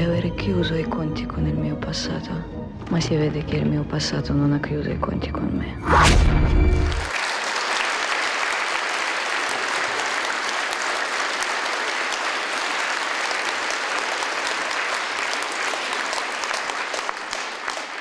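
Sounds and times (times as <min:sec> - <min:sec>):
audience clapping: 0:06.8 - 0:18.0.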